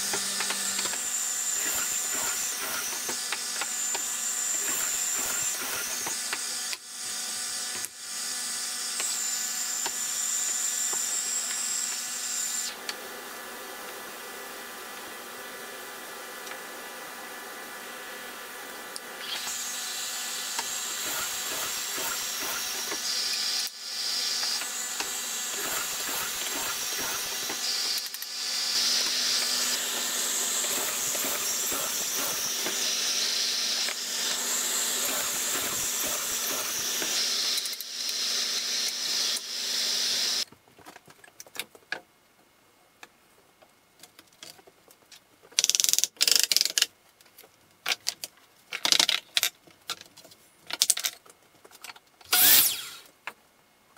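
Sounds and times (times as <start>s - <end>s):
shop tool hissing and humming: 0.0s - 13.1s, 17.8s - 40.4s, 52.3s - 53.1s.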